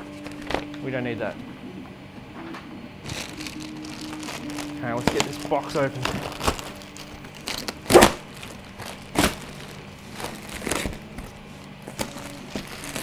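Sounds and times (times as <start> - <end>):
plastic packaging crinkling and tearing: 0.0 - 0.8, 3.0 - 13.0.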